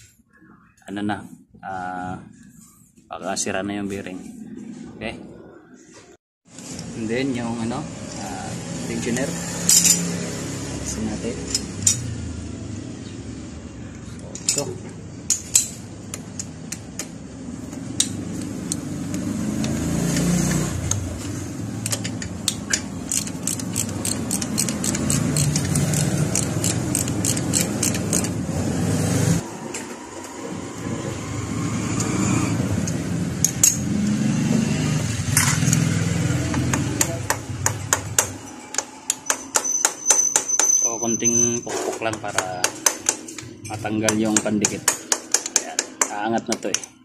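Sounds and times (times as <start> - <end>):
wrench clicking: 18.0 - 21.0, 21.8 - 28.4.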